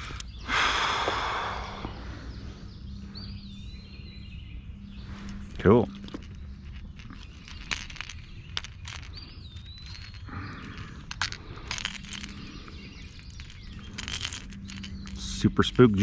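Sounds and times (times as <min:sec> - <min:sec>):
small clicks and knocks: 0:05.2 - 0:16.0.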